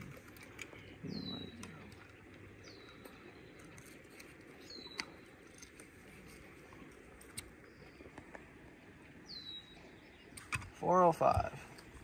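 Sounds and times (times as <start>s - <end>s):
bird chirping: 0.6s - 5.7s, 9.2s - 10.5s.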